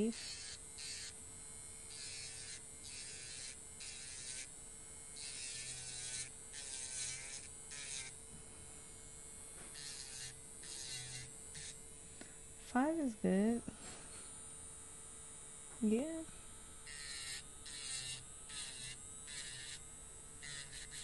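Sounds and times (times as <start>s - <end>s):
electric nail file motor whine: 0.0s - 13.2s, 13.8s - 21.0s.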